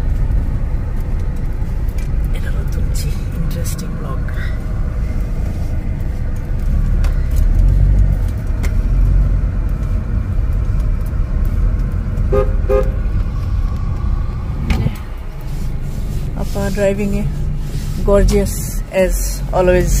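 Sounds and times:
car engine and road noise: 0:00.0 - 0:20.0
car horn beeps: 0:12.3 - 0:13.0.

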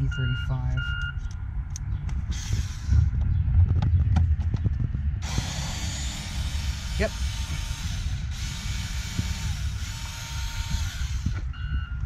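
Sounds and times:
cordless screwdriver spinning: 0:05.2 - 0:11.4.

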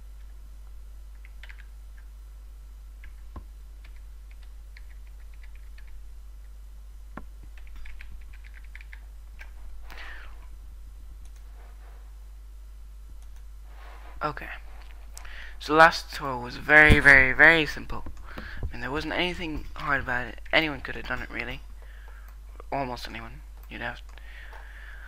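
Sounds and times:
low electrical hum: 0:00.0 - 0:25.0
keyboard typing: 0:01.1 - 0:02.1, 0:03.0 - 0:06.0, 0:07.2 - 0:09.6, 0:11.2 - 0:11.5.

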